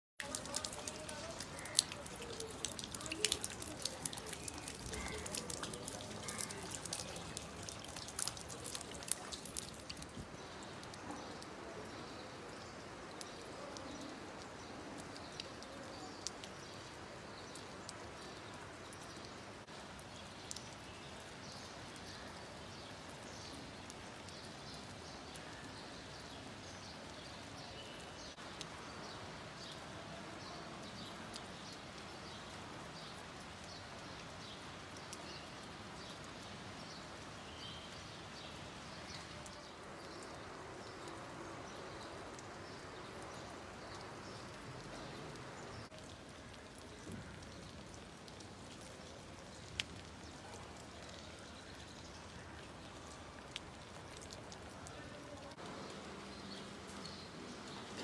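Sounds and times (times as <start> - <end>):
high rain ticks: 0.2 - 11.5, 41.9 - 58.0
rain falling: 0.2 - 58.0.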